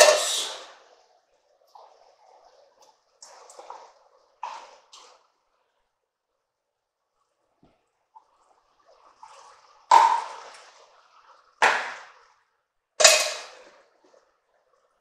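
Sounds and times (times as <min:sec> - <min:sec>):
metal cans clanking on pot: 0:13.0 - 0:13.7.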